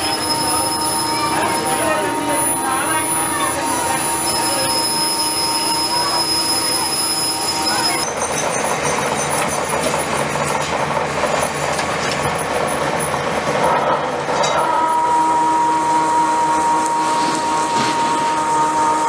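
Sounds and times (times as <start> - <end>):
drill motor whining: 0.0 - 10.4
drill bit grinding steel: 0.0 - 10.6.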